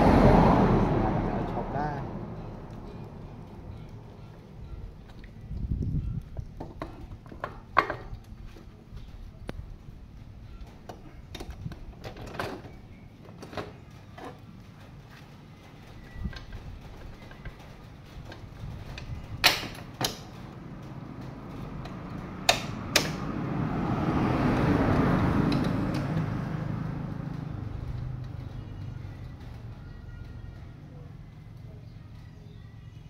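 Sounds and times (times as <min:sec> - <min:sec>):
metallic clicks and knocks of tools: 0:21.2 - 0:23.3.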